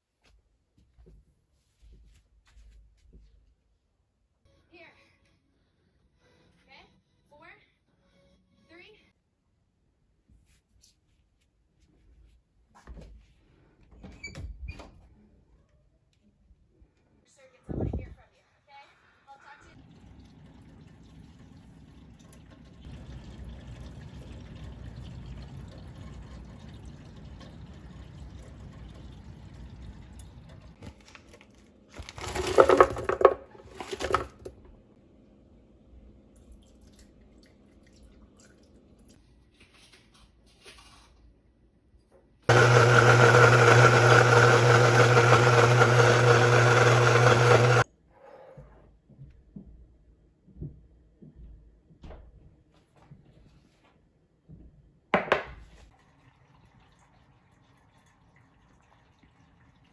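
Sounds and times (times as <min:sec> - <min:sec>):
blender running: 0:32.0 - 0:34.5, 0:42.5 - 0:47.8.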